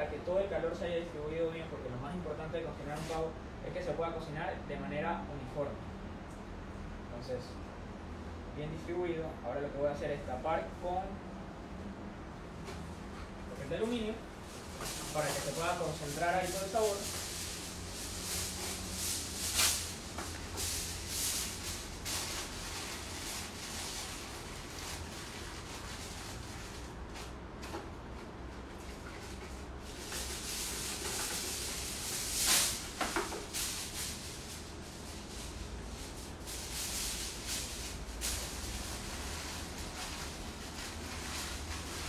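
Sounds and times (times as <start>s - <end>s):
aluminium foil rustling and crinkling: 13.5s - 27.4s, 28.6s - 42.0s.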